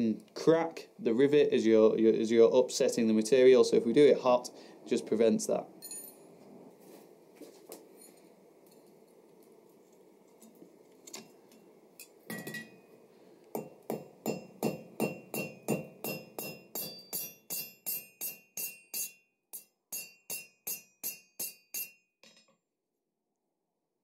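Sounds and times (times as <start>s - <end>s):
hammer striking rivet on anvil: 13.6s - 22.0s.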